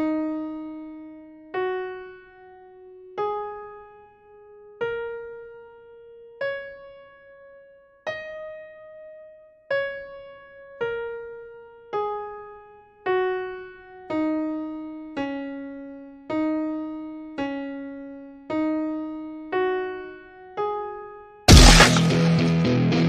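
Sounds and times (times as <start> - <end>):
slow keyboard melody: 0.0 - 21.4
loud blast of noise: 21.5 - 22.8.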